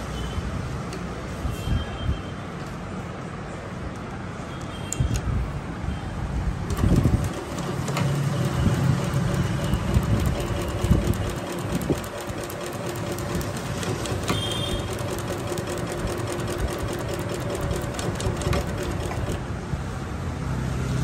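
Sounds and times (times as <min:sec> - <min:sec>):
sewing machine motor hum: 0:06.6 - 0:19.5
sewing machine needle ticking: 0:06.7 - 0:19.4.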